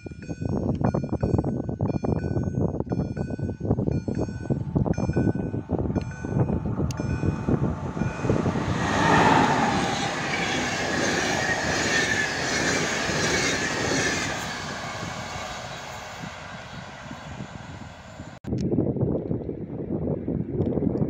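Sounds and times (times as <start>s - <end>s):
train wheels rushing on rail: 4.1s - 18.4s.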